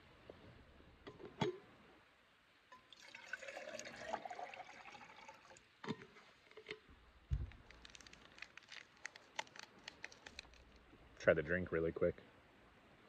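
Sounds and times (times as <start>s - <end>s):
water pouring into metal cup: 2.7s - 5.7s.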